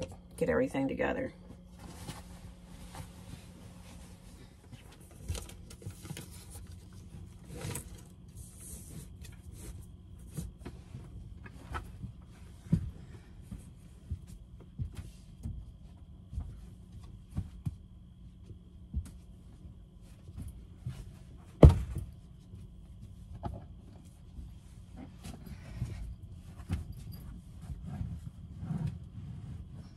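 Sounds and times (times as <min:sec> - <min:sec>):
steady low hum: 0:00.0 - 0:29.9
bedding rustling: 0:01.6 - 0:18.1
cushions thumping: 0:20.4 - 0:22.2.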